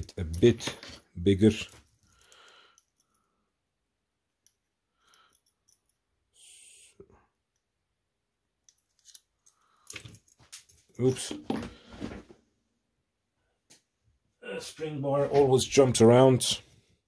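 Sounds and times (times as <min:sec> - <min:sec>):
small metallic clicks: 0:08.6 - 0:10.4.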